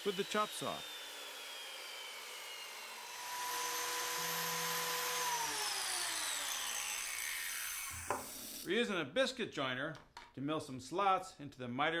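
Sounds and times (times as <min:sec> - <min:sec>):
electric motor running: 0:00.0 - 0:08.7
motor winding down whine: 0:00.0 - 0:08.7.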